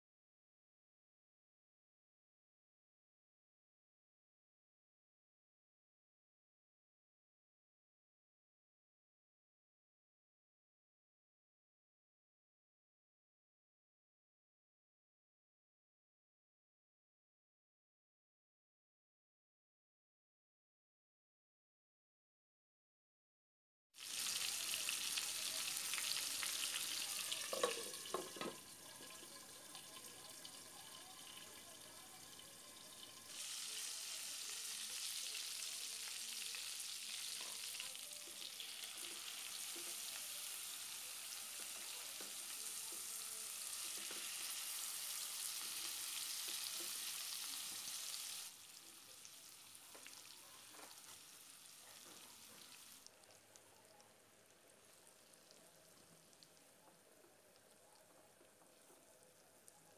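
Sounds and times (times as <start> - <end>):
chicken sizzling in hot oil: 24.0 - 59.9.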